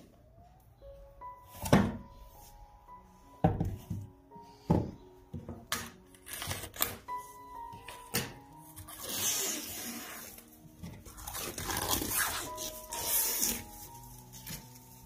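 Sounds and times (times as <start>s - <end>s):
soft background music: 0.0s - 15.0s
scissors cutting plastic wrap: 5.7s - 7.1s, 8.0s - 15.0s.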